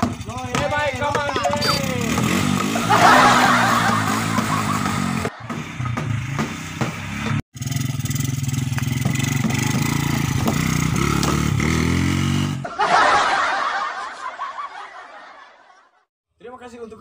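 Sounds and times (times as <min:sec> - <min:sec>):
small motorcycle engine passing: 0:00.0 - 0:12.6.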